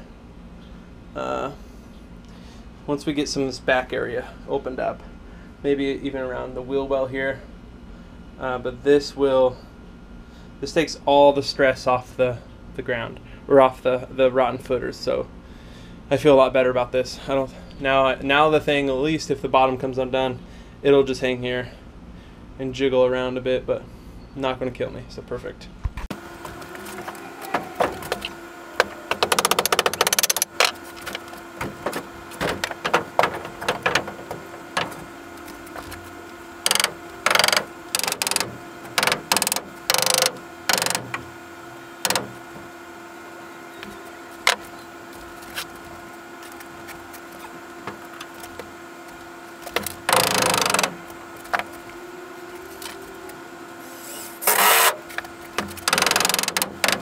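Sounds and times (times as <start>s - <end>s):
lumber knocking: 26.4s - 36.0s
power driver driving screws: 27.8s - 41.3s, 42.0s - 42.4s, 49.6s - 51.6s, 55.6s - 57.0s.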